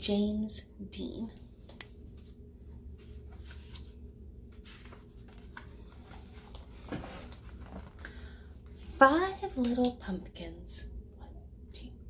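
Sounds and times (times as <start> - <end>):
low room hum: 0.0 - 12.0
book pages turning: 1.6 - 8.0
paper rustling: 1.6 - 8.0.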